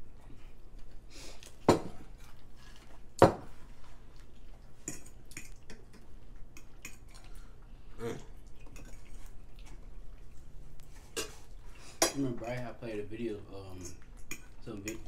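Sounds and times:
cutlery clinking on plates: 12.0 - 12.6.

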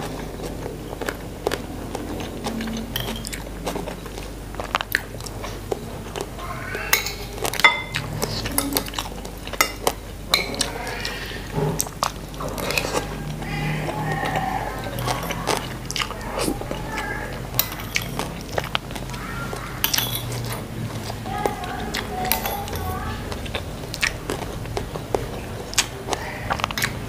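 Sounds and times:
chewing and mouth sounds: 0.0 - 27.0
cutlery clinking on plate: 2.9 - 3.5, 6.9 - 9.0, 9.6 - 10.7, 17.6 - 18.3, 19.8 - 20.6.

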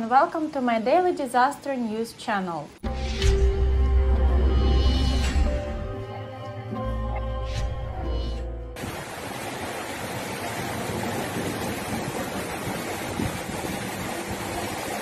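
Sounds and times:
storm wind roaring: 7.6 - 15.0.

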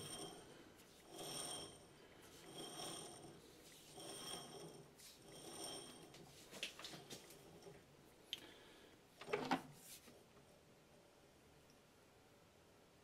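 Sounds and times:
lathe chuck rubbing: 0.0 - 7.8.

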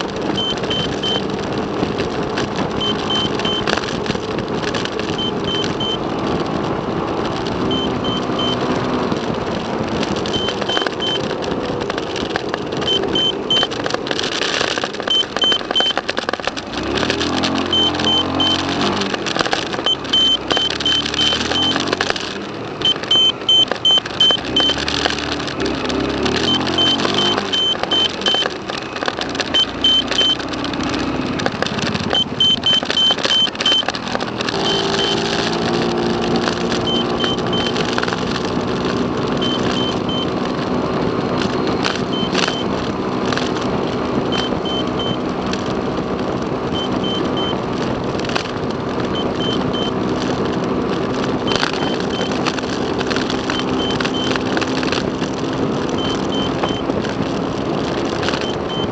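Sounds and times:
car road and engine noise: 0.0 - 58.9
short high-pitched beeps: 0.4 - 1.3, 2.8 - 4.0, 5.1 - 6.1, 7.7 - 9.0, 10.3 - 11.4, 12.8 - 16.3, 16.9 - 25.3, 26.2 - 30.5, 32.0 - 37.9, 39.3 - 40.4, 41.4 - 42.8, 44.2 - 45.2, 46.7 - 47.6, 49.1 - 50.0, 51.4 - 52.6, 53.4 - 54.6, 55.9 - 57.0, 58.2 - 58.9.

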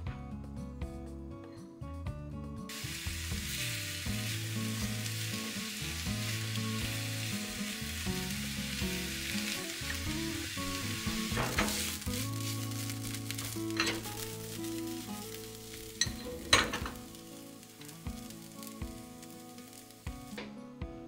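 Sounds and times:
background music: 0.0 - 21.0
onion sizzling in frying pan: 2.7 - 21.0.

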